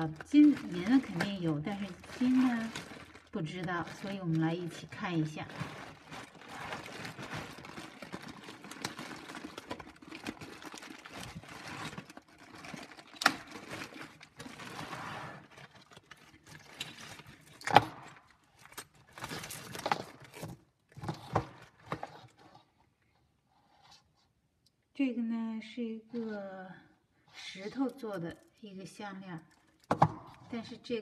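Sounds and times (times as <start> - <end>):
plastic bag rustling: 0.0 - 22.7.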